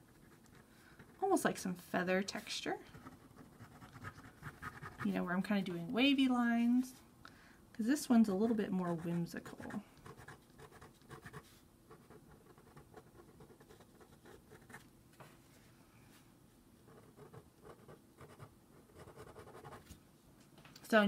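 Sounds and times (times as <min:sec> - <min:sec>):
pen nib scratching paper: 0:00.0 - 0:01.3, 0:02.9 - 0:05.2, 0:08.8 - 0:14.8, 0:16.9 - 0:19.8.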